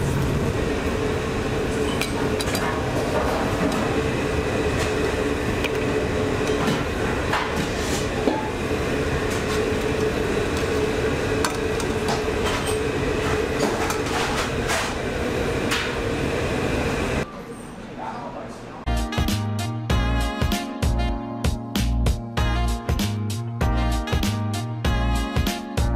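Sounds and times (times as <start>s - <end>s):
kitchen equipment hum: 0.0s - 17.3s.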